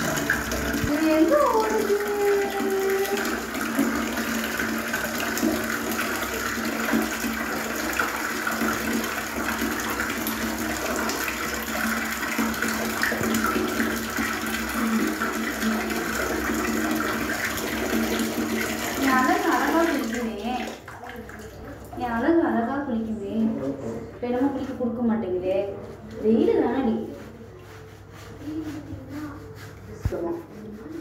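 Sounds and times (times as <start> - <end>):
water running and splashing: 0.0 - 22.3.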